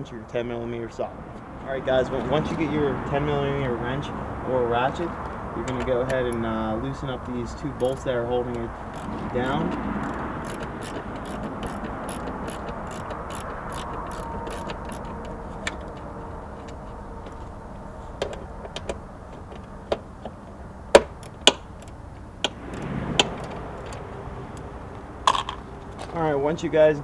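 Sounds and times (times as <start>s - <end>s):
light metal clicks: 5.6s - 6.5s
socket ratchet clicking: 8.9s - 16.0s
sharp knocks: 20.9s - 21.7s.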